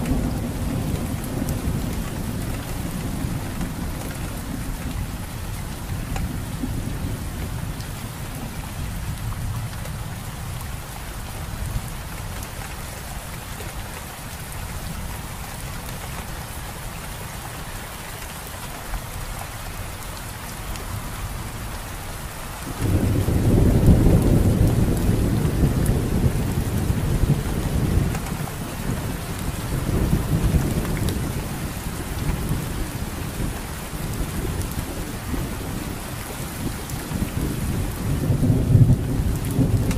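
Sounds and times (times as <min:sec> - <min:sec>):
rain falling on foliage: 0:00.0 - 0:39.9
thunder rumbling: 0:22.6 - 0:39.9.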